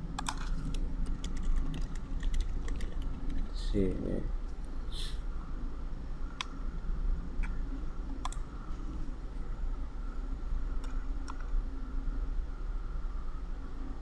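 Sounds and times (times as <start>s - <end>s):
low background hum: 0.0s - 14.0s
computer mouse clicking: 0.2s - 3.5s, 6.3s - 6.6s, 7.4s - 7.6s, 8.2s - 8.5s, 10.8s - 11.6s.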